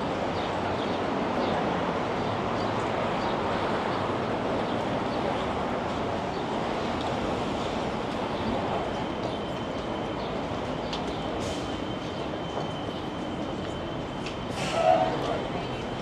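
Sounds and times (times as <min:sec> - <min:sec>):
faint voices: 0:14.6 - 0:16.0.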